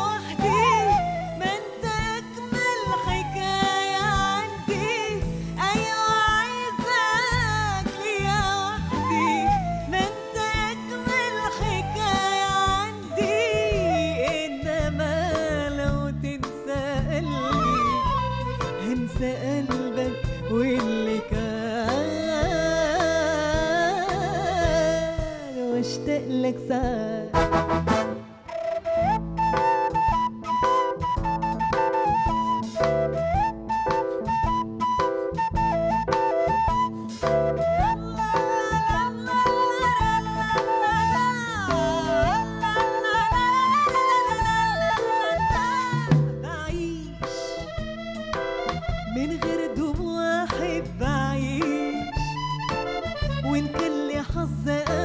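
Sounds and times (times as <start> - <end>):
woman singing with ornamented runs: 0.0 - 27.3, 38.0 - 47.6, 49.1 - 52.3, 53.4 - 55.0
bass guitar: 0.0 - 55.0
drums: 0.0 - 55.0
keyboards: 0.0 - 55.0.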